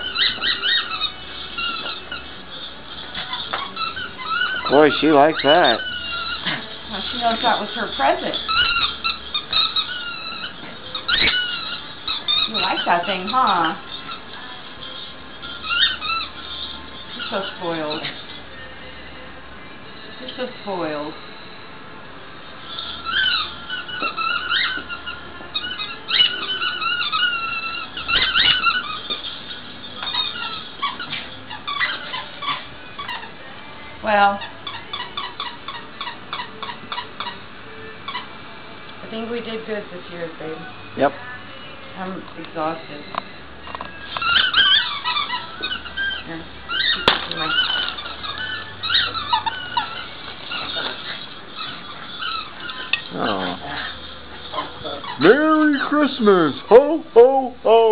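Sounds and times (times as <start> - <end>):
dog chewing: 0.0 - 18.7, 22.7 - 33.5, 43.1 - 56.8
squeaky toy squeaking: 0.0 - 19.1, 22.4 - 57.9.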